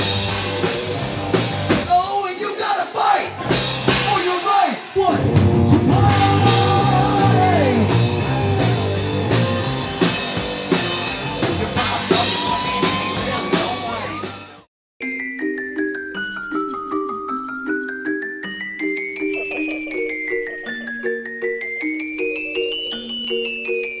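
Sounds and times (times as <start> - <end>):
rock band playing: 0.0 - 14.7
gentle melodic music: 15.0 - 24.0.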